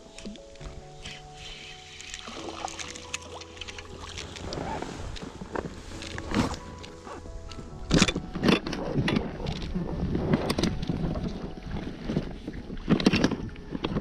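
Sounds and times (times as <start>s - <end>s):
choppy water: 0.0s - 14.0s
fish splashing at surface: 2.0s - 4.5s
wind rumbling on microphone: 3.7s - 14.0s.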